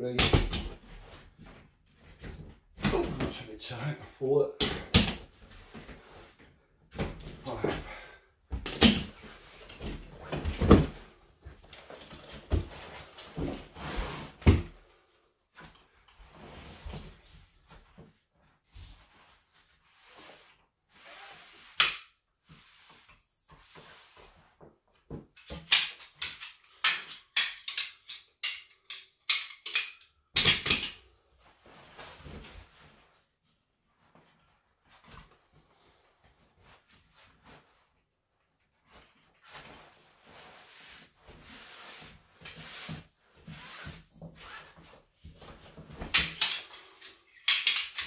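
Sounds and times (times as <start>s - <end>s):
metal poles clacking: 25.5s - 31.0s, 46.1s - 48.0s.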